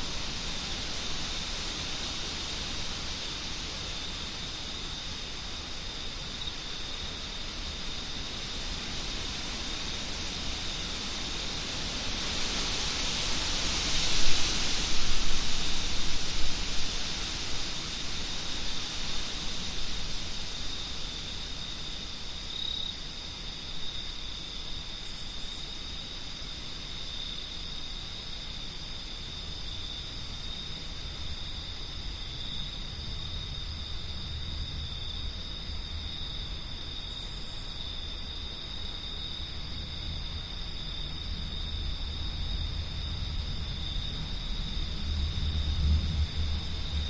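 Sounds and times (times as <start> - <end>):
crickets trilling: 0.0 - 47.0
low wind rumble: 0.0 - 47.0.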